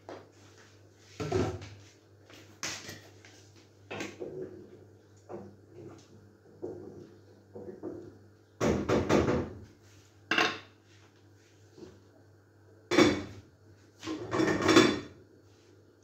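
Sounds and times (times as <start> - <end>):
pots and lids clattering: 14.1 - 15.1.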